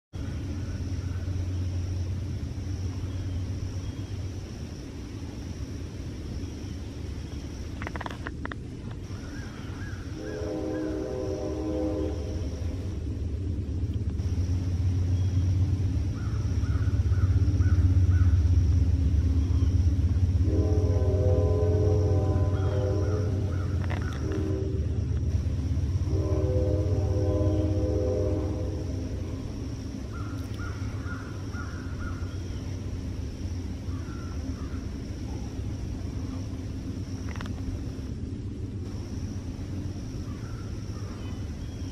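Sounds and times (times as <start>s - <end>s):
low rumble: 0.1s - 41.9s
faint high whine: 0.2s - 41.9s
bird calling: 9.0s - 12.8s, 14.9s - 25.2s, 25.8s - 33.0s, 33.6s - 36.7s, 40.1s - 41.9s
bird harsh calls: 9.1s - 12.2s, 16.1s - 18.5s, 22.4s - 25.0s, 30.0s - 32.8s.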